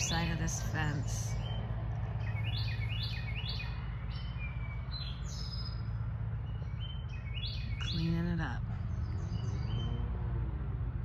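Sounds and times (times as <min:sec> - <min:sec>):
songbird chirping: 0:00.0 - 0:11.0.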